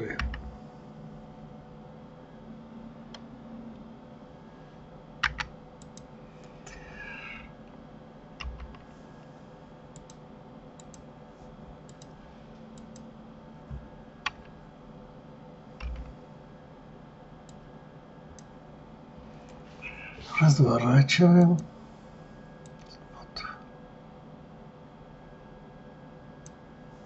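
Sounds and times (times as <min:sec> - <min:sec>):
faint steady hum: 0:00.0 - 0:27.0
keyboard and mouse clicks: 0:05.2 - 0:06.1, 0:08.4 - 0:08.8, 0:10.0 - 0:10.2, 0:10.8 - 0:11.0, 0:11.9 - 0:12.2, 0:15.8 - 0:16.2.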